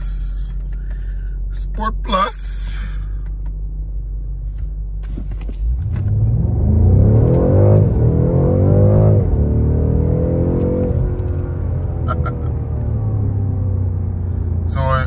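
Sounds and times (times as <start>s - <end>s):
car engine accelerating at full throttle: 5.1s - 15.0s.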